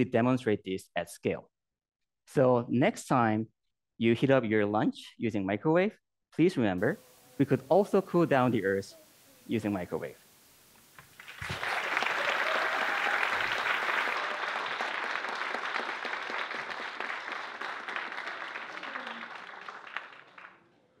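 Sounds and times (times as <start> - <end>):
audience applauding: 11.0 - 20.7.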